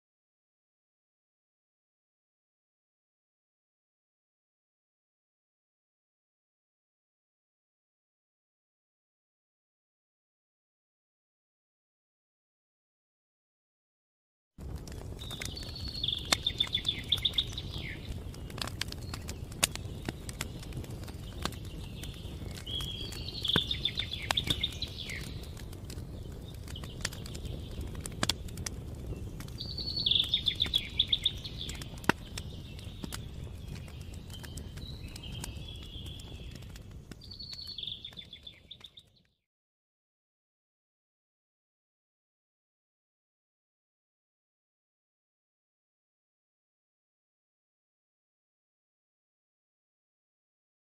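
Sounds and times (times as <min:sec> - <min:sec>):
campfire crackling and popping: 0:14.6 - 0:39.3
songbird trilling: 0:15.6 - 0:18.1, 0:22.7 - 0:25.3, 0:29.6 - 0:32.0.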